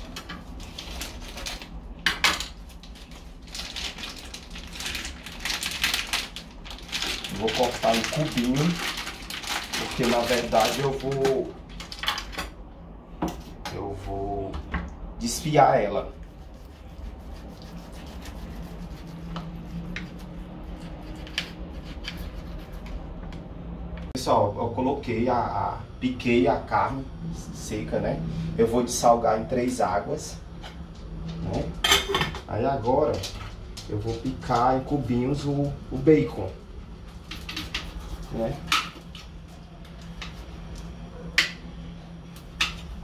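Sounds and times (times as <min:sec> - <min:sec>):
plastic packaging crinkling: 0:00.0 - 0:12.4
low hum: 0:11.3 - 0:43.0.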